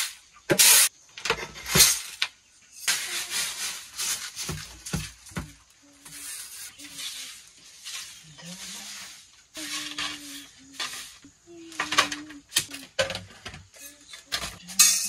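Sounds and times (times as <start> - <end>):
dry grain rustling and pouring: 2.8 - 5.0, 6.1 - 11.2.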